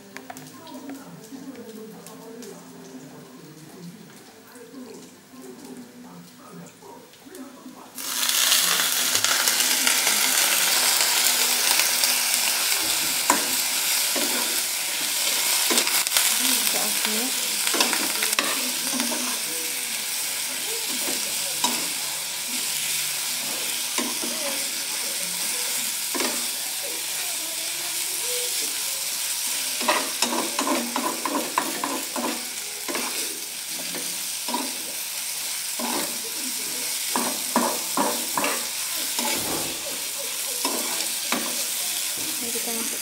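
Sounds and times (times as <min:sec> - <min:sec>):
food sizzling in a frying pan: 0:00.0 - 0:43.0
spatula scraping and tapping pan: 0:29.8 - 0:34.8, 0:35.8 - 0:36.2, 0:37.1 - 0:42.4.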